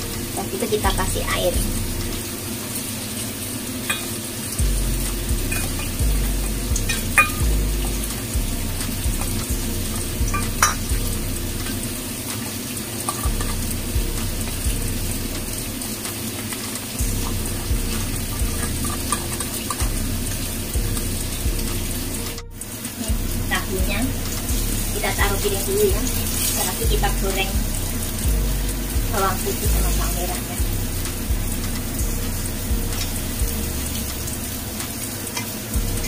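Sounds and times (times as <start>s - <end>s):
tofu sizzling in a pan: 0.0s - 29.7s, 30.5s - 36.0s
spoon clinking against metal bowl: 6.9s - 7.4s, 10.3s - 10.9s.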